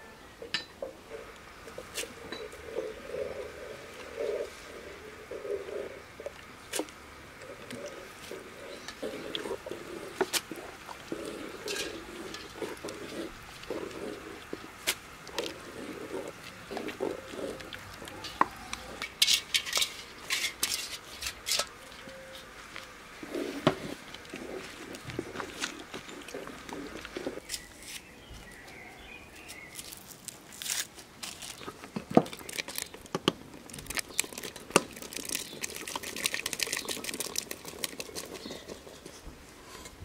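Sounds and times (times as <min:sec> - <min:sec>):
spoon swishing thick liquid: 0:07.5 - 0:19.0, 0:23.2 - 0:27.4, 0:33.6 - 0:39.9.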